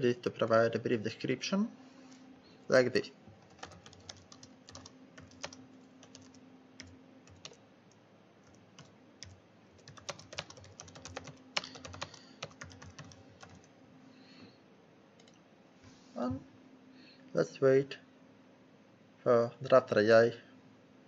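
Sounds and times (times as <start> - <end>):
keyboard typing clicks: 3.4 - 7.6, 8.4 - 13.7, 15.2 - 15.4.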